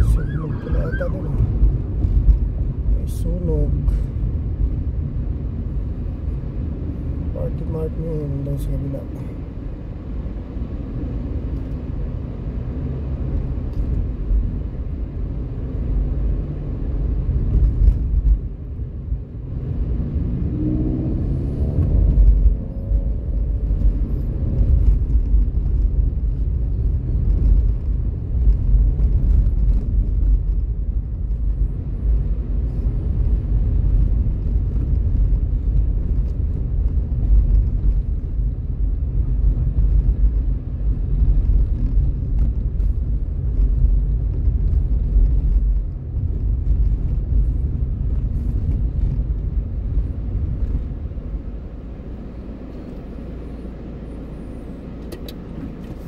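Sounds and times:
engine note rising: 0.0s - 1.6s
car road noise: 0.0s - 56.0s.

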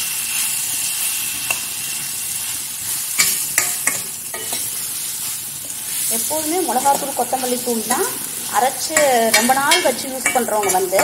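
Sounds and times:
vegetables sizzling in oil: 0.0s - 11.0s
metal spoon scraping pan: 3.2s - 4.9s, 8.6s - 11.0s.

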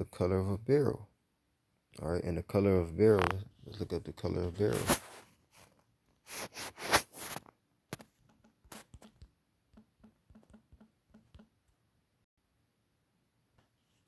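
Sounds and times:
short rustling hisses: 6.2s - 7.5s
taps on phone screen: 7.9s - 11.6s.

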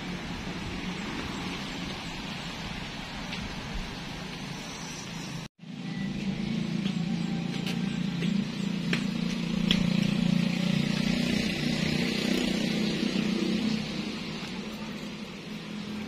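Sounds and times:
low motor hum: 5.6s - 16.0s.

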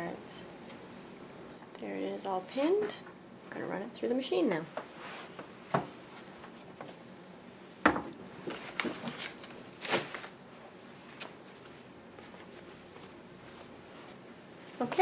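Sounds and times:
fabric rustling: 8.4s - 15.0s.

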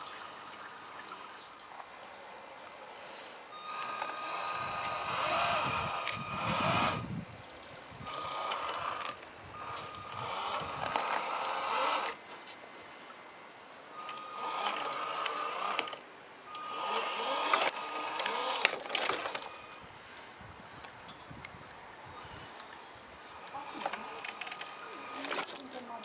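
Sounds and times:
electric motor whine: 3.4s - 7.3s, 7.9s - 12.2s, 13.9s - 19.9s, 23.2s - 26.0s.

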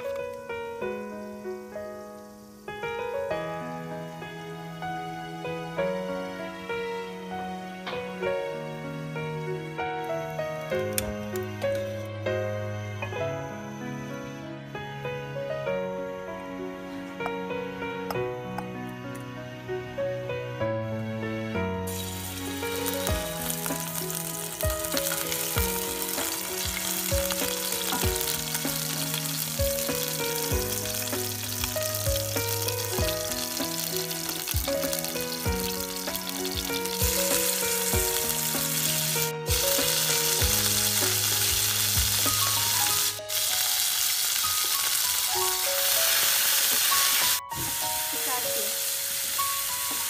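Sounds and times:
hot oil sizzling: 0.0s - 5.1s, 21.9s - 50.0s
background music: 0.0s - 50.0s.

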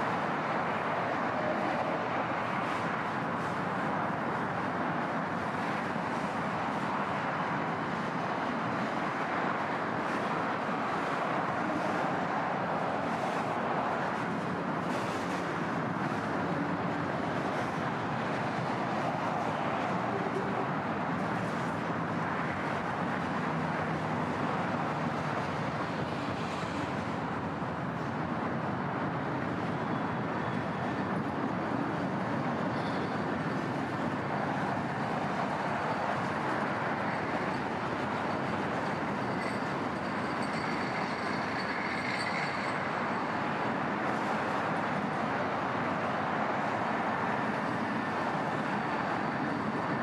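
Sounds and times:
steel wheels on rails: 13.3s - 50.0s
faint high wheel squeals: 32.6s - 33.8s, 37.3s - 44.3s.

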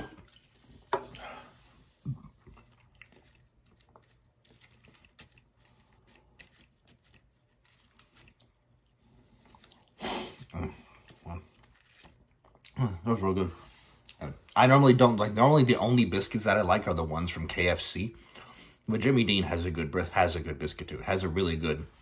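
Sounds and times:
fingertips rustling on paper plate: 0.2s - 9.8s.

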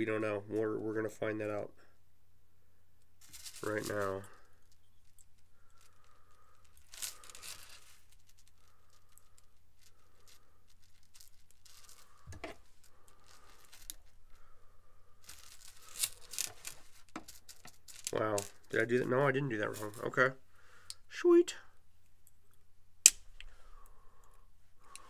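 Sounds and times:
chainmail rings clicking and rustling: 15.3s - 18.7s.

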